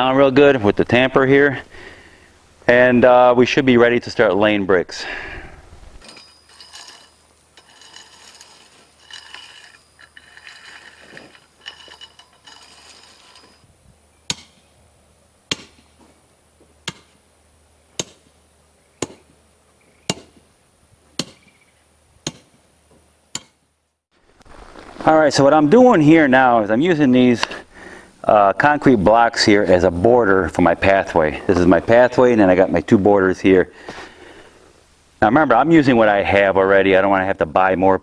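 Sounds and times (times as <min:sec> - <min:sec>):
rake scraping gravel: 0:05.8 - 0:13.8, 0:24.2 - 0:27.7, 0:28.4 - 0:33.0
hand tamper thudding on gravel: 0:15.5 - 0:17.2.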